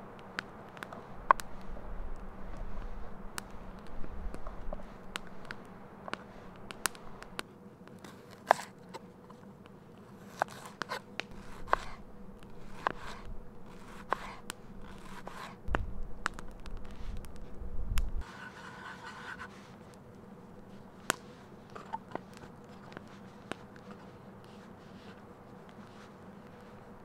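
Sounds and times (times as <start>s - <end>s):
knife shaving cheese: 8.0s - 17.5s, 18.2s - 27.0s
knife slicing onion: 10.2s - 15.6s
low rumble: 15.6s - 18.2s.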